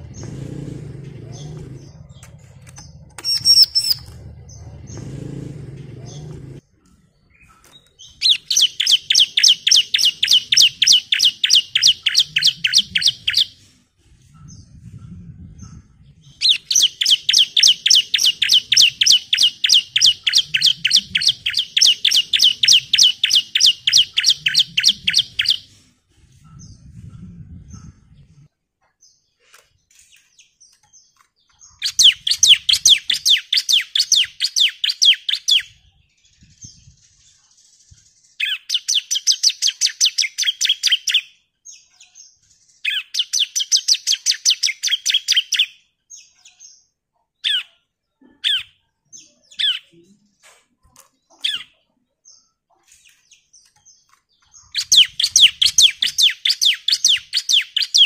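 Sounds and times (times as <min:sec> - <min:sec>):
bird trilling high chirps: 0:01.3 - 0:05.0, 0:07.3 - 0:13.6, 0:16.2 - 0:25.7, 0:31.5 - 0:46.8, 0:53.1 - 0:58.0.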